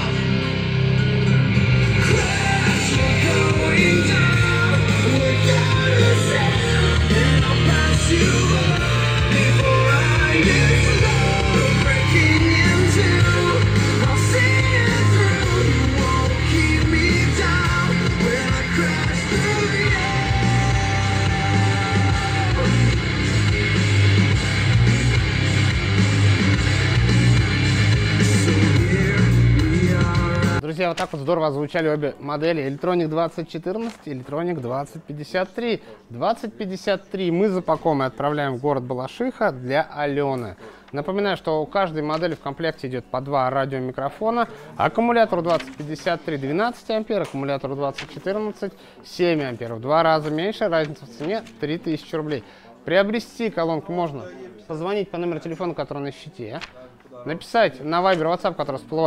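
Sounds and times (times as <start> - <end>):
song with singing and heavy bass: 0.0 - 30.6.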